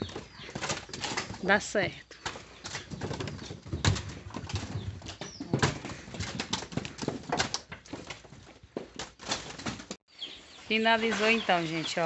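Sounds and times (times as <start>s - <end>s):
roots knocking and thudding: 0.0s - 10.0s.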